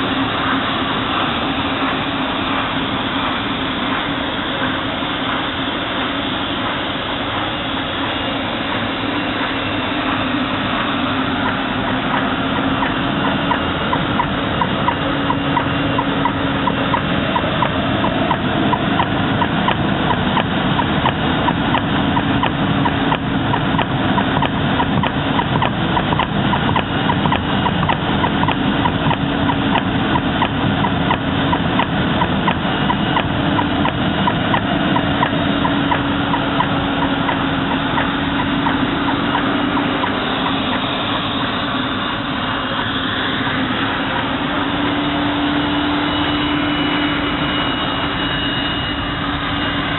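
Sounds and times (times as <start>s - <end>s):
fast even ticking: 0.0s - 47.2s
blasting machinery rushing: 0.0s - 49.9s
low hum: 0.0s - 49.9s.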